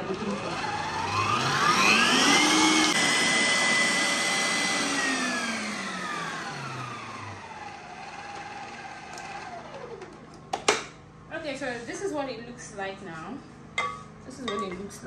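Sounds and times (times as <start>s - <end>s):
stand mixer motor whining: 0.0s - 10.5s.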